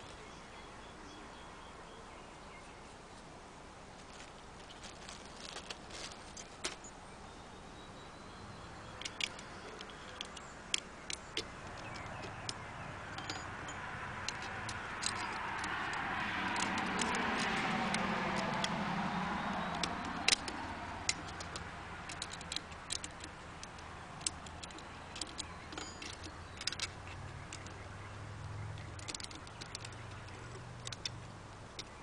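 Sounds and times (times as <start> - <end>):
vehicle passing: 8.4 - 32.0
small metal clicks and taps: 8.9 - 32.0.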